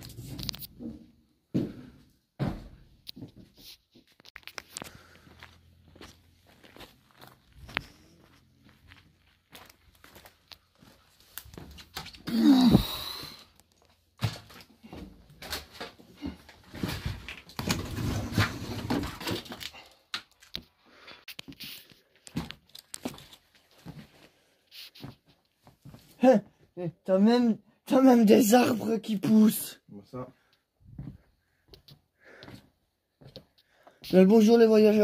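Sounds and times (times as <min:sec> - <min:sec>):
footsteps: 0:00.0 - 0:12.0, 0:30.8 - 0:34.2.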